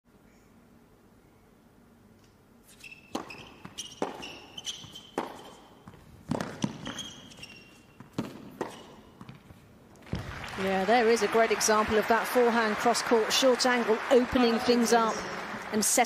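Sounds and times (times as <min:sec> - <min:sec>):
shoes squeaking on court: 0:02.6 - 0:10.2
racket striking ball: 0:03.1 - 0:10.4
ball bouncing on court: 0:03.1 - 0:10.7.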